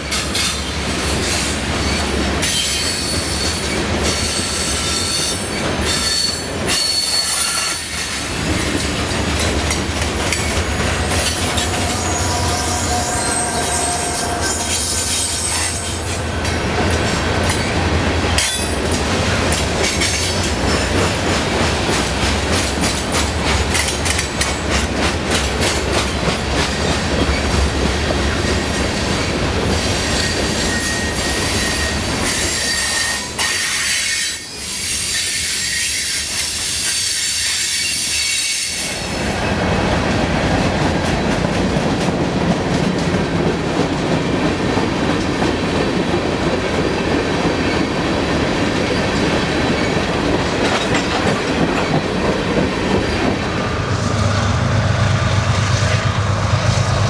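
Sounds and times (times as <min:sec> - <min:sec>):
diesel locomotive passing: 0:00.0 - 0:57.0
freight train wheel and rail noise: 0:00.0 - 0:57.0
wheels squealing: 0:04.2 - 0:16.5
rapid rail clicks: 0:07.5 - 0:11.5, 0:16.4 - 0:28.4.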